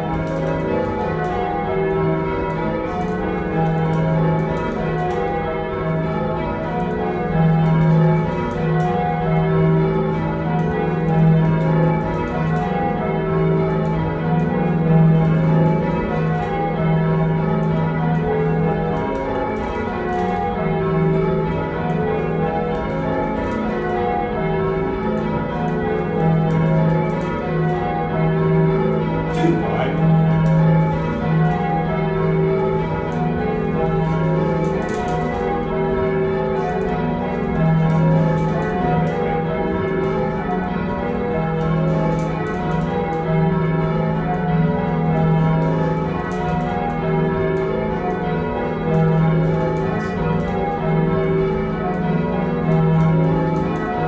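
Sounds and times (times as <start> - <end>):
church bells change ringing: 0.0 - 54.0.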